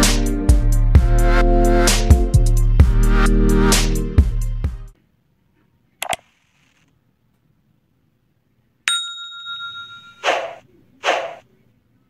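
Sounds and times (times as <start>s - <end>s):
bright bell ding: 8.9s - 10.2s.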